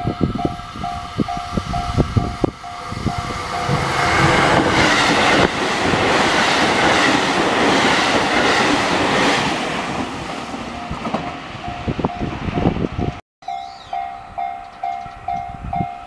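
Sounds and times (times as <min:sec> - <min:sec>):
crossing warning bell: 0:00.0 - 0:05.5, 0:10.6 - 0:16.0
train wheel and rail noise: 0:00.0 - 0:16.0.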